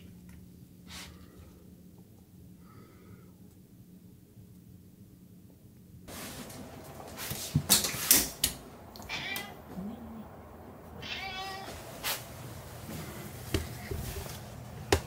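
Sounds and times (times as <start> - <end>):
cat meowing: 9.0 - 9.9, 11.0 - 11.8.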